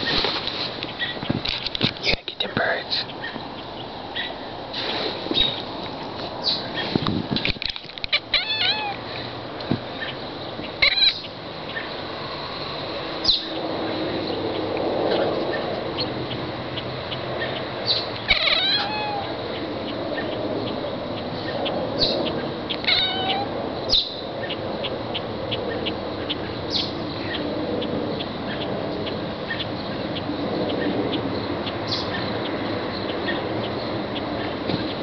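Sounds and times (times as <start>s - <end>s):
cat meowing: 8.1s - 9.0s, 10.8s - 11.2s, 18.2s - 19.4s, 22.8s - 23.5s.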